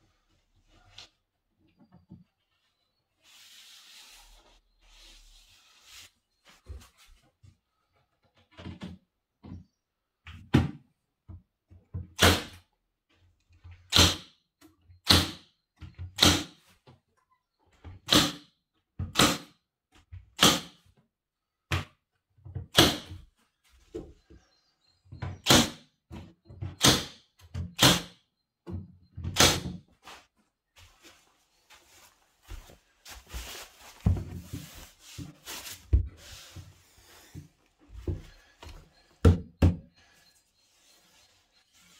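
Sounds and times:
stapler firing into wood: 0:12.2 - 0:12.6, 0:13.9 - 0:14.3, 0:15.0 - 0:15.5, 0:16.2 - 0:16.6, 0:18.1 - 0:18.5, 0:19.1 - 0:19.5, 0:20.4 - 0:20.8, 0:22.7 - 0:23.1, 0:25.4 - 0:25.8, 0:26.8 - 0:27.2, 0:27.8 - 0:28.2, 0:29.3 - 0:29.8.

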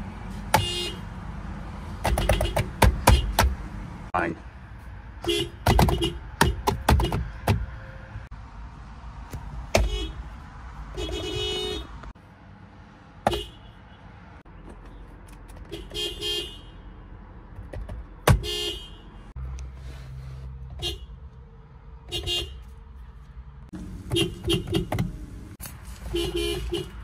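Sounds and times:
car horn honks: 0:00.5 - 0:01.1, 0:02.0 - 0:03.4, 0:05.2 - 0:07.2, 0:09.7 - 0:10.3, 0:10.9 - 0:12.0, 0:13.2 - 0:14.0, 0:15.7 - 0:16.8, 0:18.3 - 0:19.2, 0:22.1 - 0:22.7, 0:24.0 - 0:25.1, 0:26.1 - 0:27.0.

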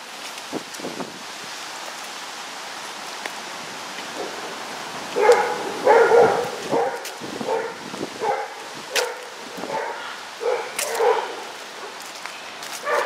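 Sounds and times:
wind hissing: 0:00.0 - 0:11.8
footsteps on sidewalk: 0:00.0 - 0:13.0
dog barking: 0:05.2 - 0:12.0.

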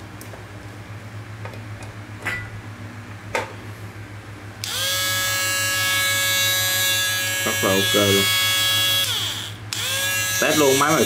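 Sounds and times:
inverter humming: 0:00.0 - 0:11.0
die grinder whining: 0:04.6 - 0:11.0.

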